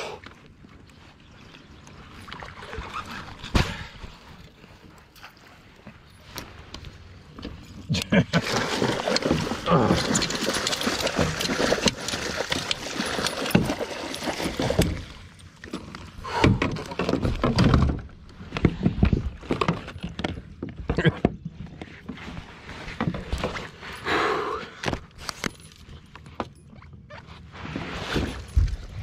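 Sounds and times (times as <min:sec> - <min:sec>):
water splashing: 0:01.6 - 0:04.4, 0:08.3 - 0:15.4
fish thrashing in water: 0:08.3 - 0:15.6.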